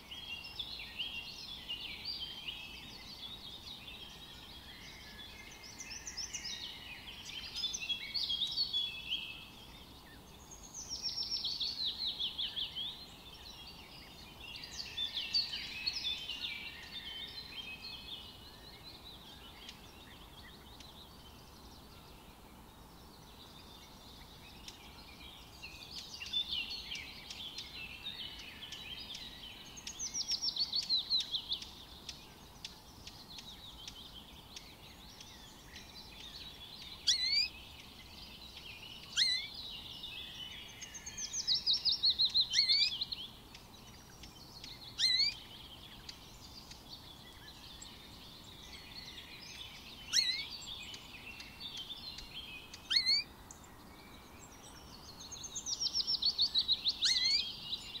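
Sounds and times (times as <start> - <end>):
faint bird twittering: 0.0 - 58.0
sharp upslurred bird calls: 44.9 - 45.4, 52.2 - 53.2.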